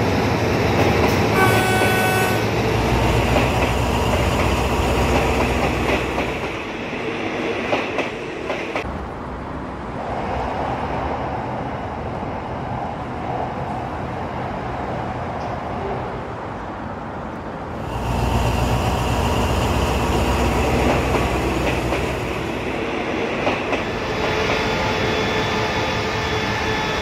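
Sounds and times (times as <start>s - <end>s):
train rumbling past: 0.0s - 17.1s, 17.7s - 27.0s
wheels clacking over rail joints: 18.0s - 24.7s.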